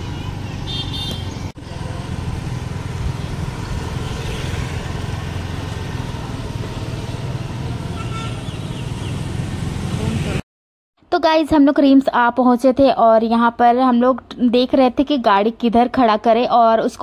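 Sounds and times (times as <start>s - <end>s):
motor scooter engine and road rumble: 0.0s - 10.4s.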